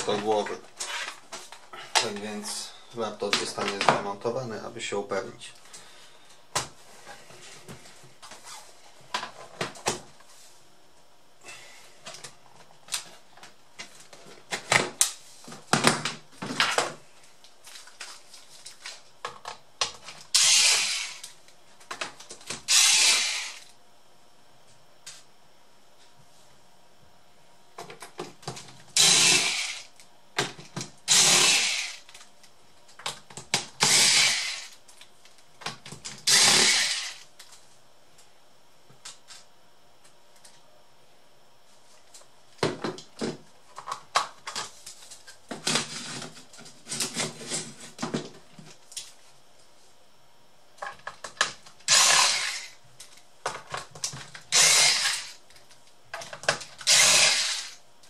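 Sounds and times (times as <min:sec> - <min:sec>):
electric screwdriver whirring: 0:20.3 - 0:21.3, 0:22.7 - 0:23.7, 0:29.0 - 0:29.9, 0:31.1 - 0:32.0, 0:33.8 - 0:34.7, 0:36.2 - 0:37.2, 0:51.9 - 0:52.8, 0:54.5 - 0:55.4, 0:56.8 - 0:57.8.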